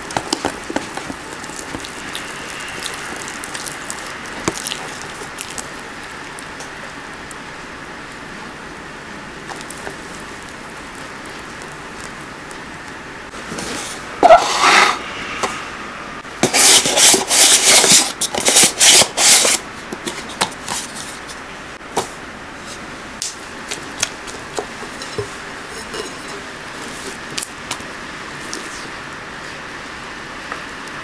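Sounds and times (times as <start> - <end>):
rough rubbing strokes: 13.3 - 18.0.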